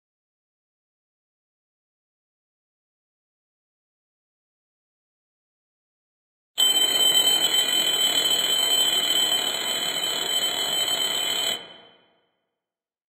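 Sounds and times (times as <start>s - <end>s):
alarm clock ringing: 6.6s - 12.1s.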